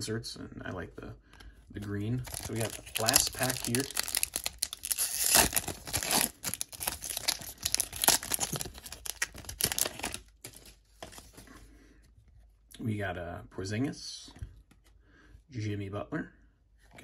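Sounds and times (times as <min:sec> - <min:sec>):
foil wrapper crackling: 0:02.2 - 0:10.8.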